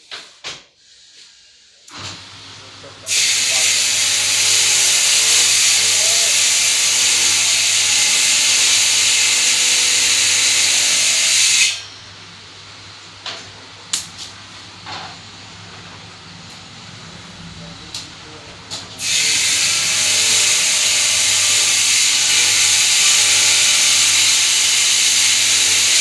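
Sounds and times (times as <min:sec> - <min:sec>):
loud steady hiss: 0:03.1 - 0:11.9, 0:19.0 - 0:26.0.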